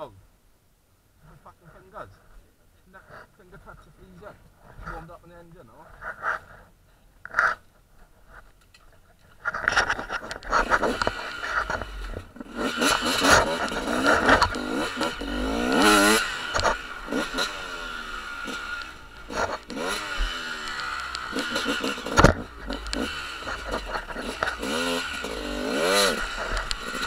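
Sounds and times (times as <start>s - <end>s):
dirt bike engines revving: 9.6s - 27.0s.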